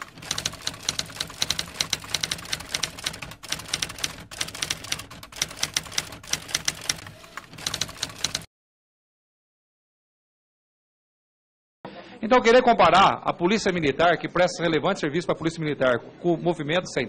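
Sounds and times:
typewriter keys clacking: 0.0 - 8.5.

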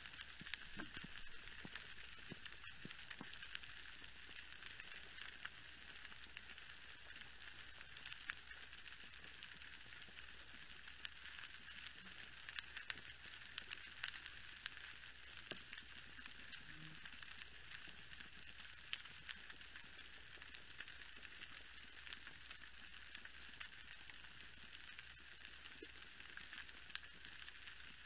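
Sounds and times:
snapping shrimp crackle: 0.0 - 28.0.

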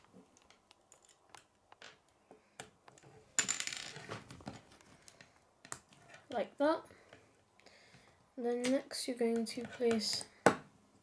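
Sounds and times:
plastic pieces clicking: 0.4 - 6.3.

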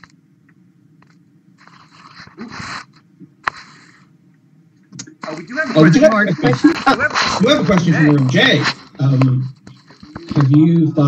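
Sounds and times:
faint rustling and scraping: 1.0 - 4.1.

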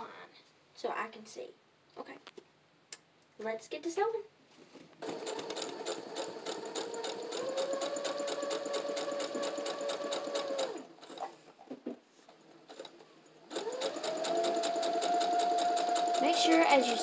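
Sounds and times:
faint handling sounds: 4.4 - 5.0
sewing machine stitching: 5.0 - 11.4, 12.4 - 17.0.

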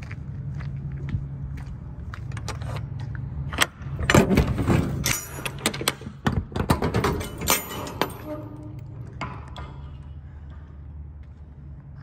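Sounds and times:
low engine hum: 0.0 - 5.0
metal latch clanks and clicks: 3.5 - 9.7.

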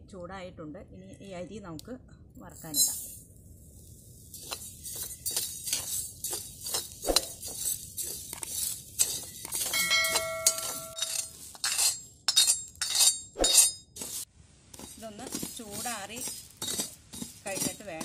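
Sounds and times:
rice grains rattling: 2.8 - 11.7, 14.0 - 18.0
spoon scraping a metal pan: 4.3 - 18.0.

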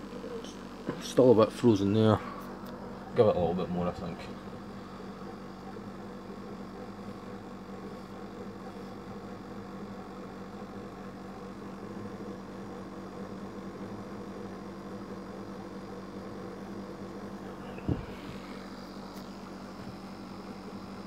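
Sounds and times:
dehumidifier humming: 0.0 - 21.0.

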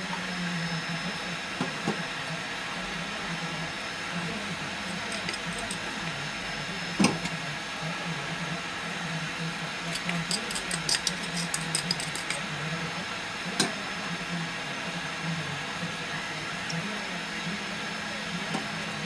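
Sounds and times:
low kitchen hum: 0.0 - 19.0
spoon clicks and taps: 4.9 - 5.8, 9.9 - 12.4.

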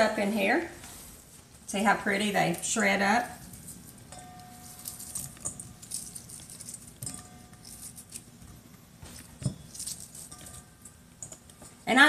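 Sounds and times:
onion rings crinkly rustling: 2.4 - 8.4, 9.0 - 10.4.

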